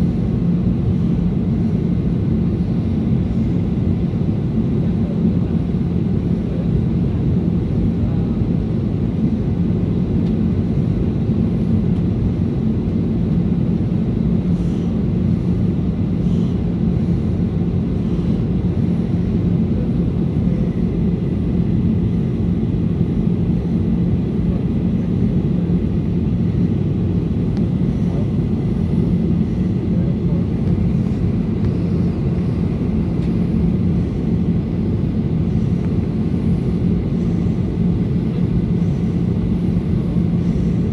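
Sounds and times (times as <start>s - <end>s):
constant low hum: 0.0s - 40.9s
jet engine drone in cabin: 0.0s - 40.9s.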